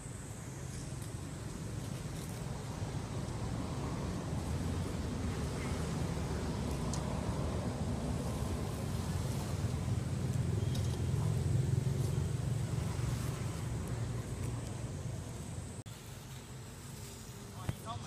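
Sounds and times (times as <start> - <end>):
faint light ticks: 6.7 - 7.1.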